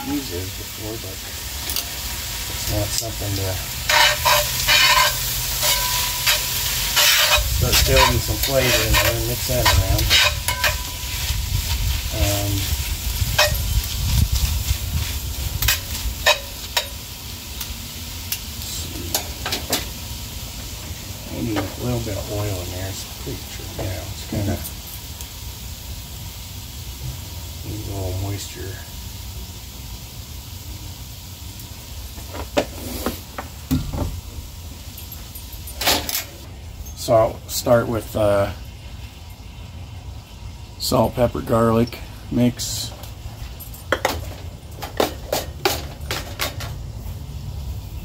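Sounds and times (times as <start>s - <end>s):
food sizzling in hot oil: 0.0s - 35.8s, 36.4s - 48.0s
spoon scraping and clinking on pan: 3.9s - 11.3s, 13.3s - 13.7s.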